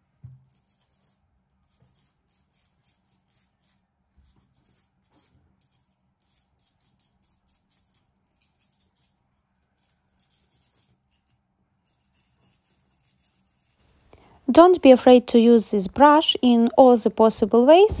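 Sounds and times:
bristle brush scrubbing: 0:11.8 - 0:14.7.

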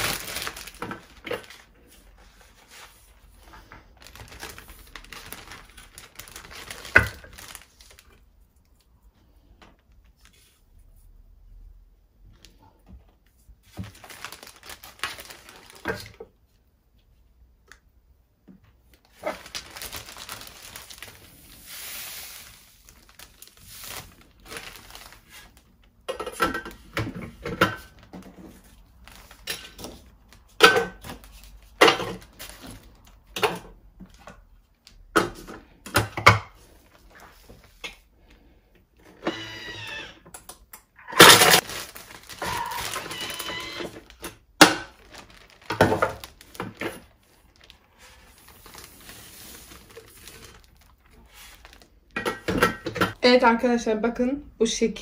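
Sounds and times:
electric food chopper grinding: 0:39.2 - 0:40.2.

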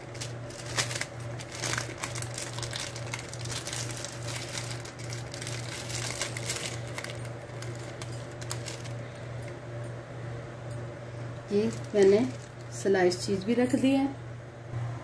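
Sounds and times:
plastic film crinkling: 0:00.0 - 0:09.2, 0:11.5 - 0:12.8.

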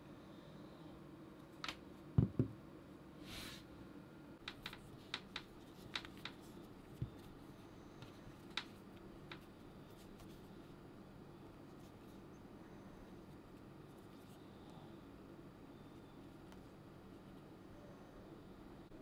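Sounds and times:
fingernails clicking on hollow vinyl: 0:04.4 - 0:07.2.

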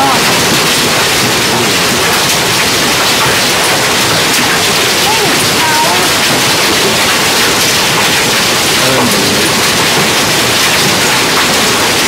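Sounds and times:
hail and heavy rain: 0:00.0 - 0:12.0
faint voice: 0:01.5 - 0:01.8, 0:08.8 - 0:09.7.

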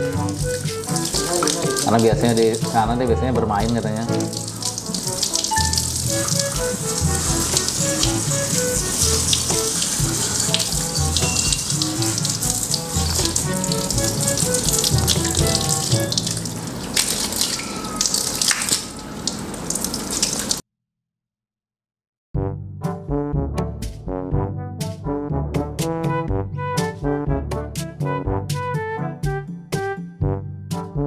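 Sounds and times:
hose water spraying on fur: 0:00.0 - 0:02.9, 0:03.5 - 0:20.6
background music: 0:00.0 - 0:16.7, 0:22.4 - 0:31.0.

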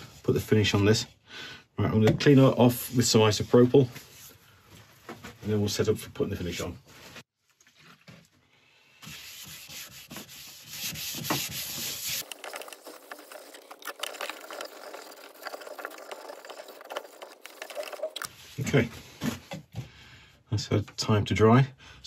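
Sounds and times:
cloth rubbing wooden bowl: 0:09.0 - 0:18.6.

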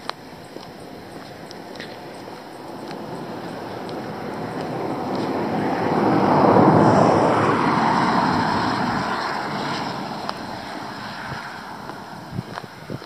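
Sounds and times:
vehicle passing: 0:00.4 - 0:13.0.

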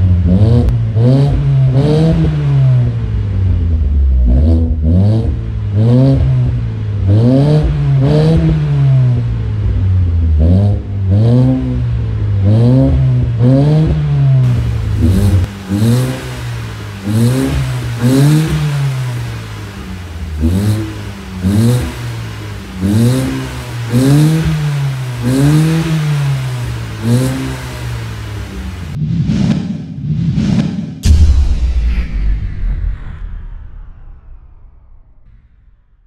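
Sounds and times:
car engine revving: 0:00.0 - 0:29.0.

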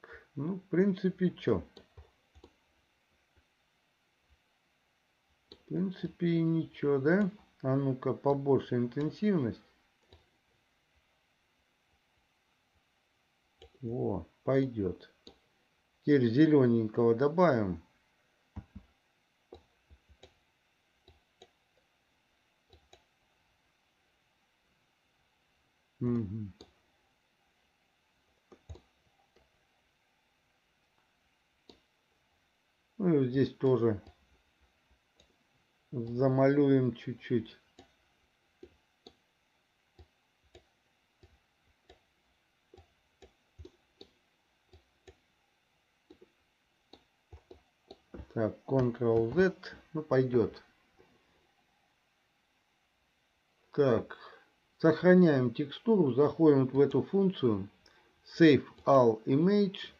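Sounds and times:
computer mouse clicks: 0:01.7 - 0:02.6, 0:05.5 - 0:05.7, 0:10.0 - 0:10.3, 0:13.6 - 0:13.8, 0:15.2 - 0:15.5, 0:19.5 - 0:20.4, 0:21.0 - 0:21.9, 0:22.7 - 0:23.1, 0:28.4 - 0:29.5, 0:31.6 - 0:31.9, 0:35.1 - 0:35.4, 0:37.7 - 0:38.0, 0:38.6 - 0:39.2, 0:39.9 - 0:42.1, 0:42.7 - 0:45.2, 0:46.0 - 0:49.4.

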